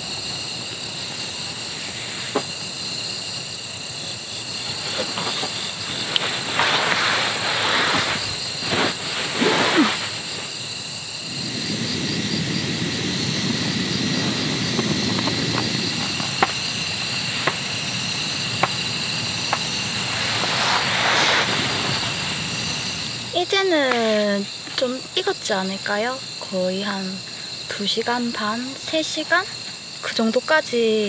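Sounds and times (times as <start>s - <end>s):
crickets chirping: 0.0s - 31.0s
soft rustles of movement: 4.5s - 10.7s
low steady rush: 10.3s - 23.8s.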